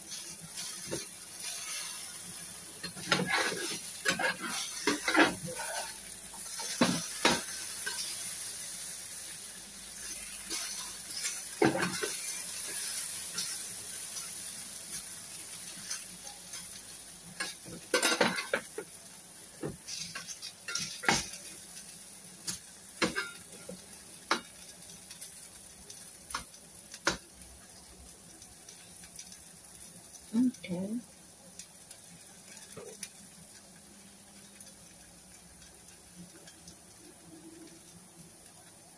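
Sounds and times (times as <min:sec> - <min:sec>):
potatoes frying in hot oil: 0:00.0 - 0:38.9
steel spatula scraping a pan: 0:00.1 - 0:08.8, 0:10.0 - 0:15.0, 0:19.8 - 0:21.4.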